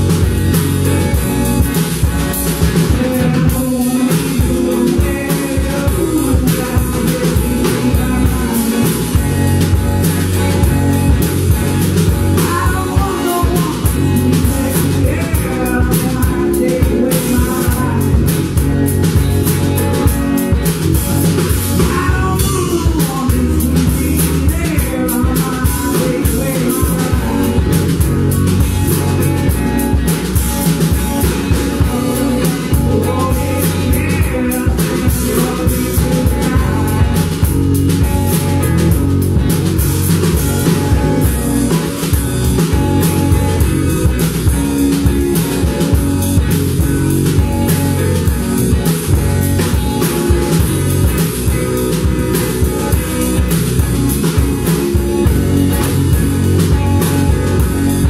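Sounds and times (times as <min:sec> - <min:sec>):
drum kit: 0:00.0 - 0:58.0
electric guitars: 0:00.0 - 0:58.0
woman singing: 0:12.4 - 0:18.2.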